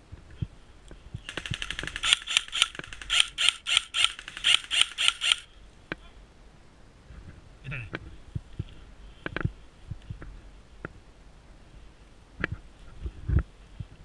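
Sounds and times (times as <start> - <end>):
airsoft rifle rapid fire: 1.3 - 5.5.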